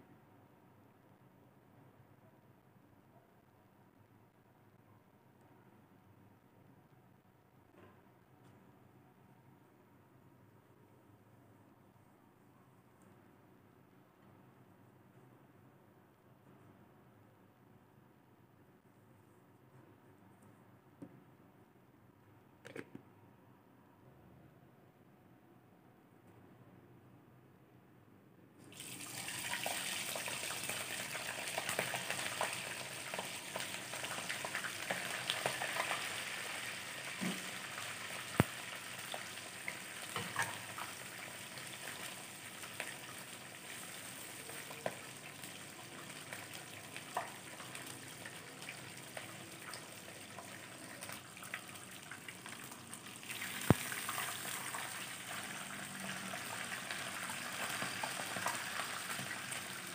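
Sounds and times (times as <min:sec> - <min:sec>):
hot oil sizzling: 0:28.7 - 0:59.9
oil crackles and pops: 0:31.5 - 0:41.0, 0:52.6 - 0:54.7.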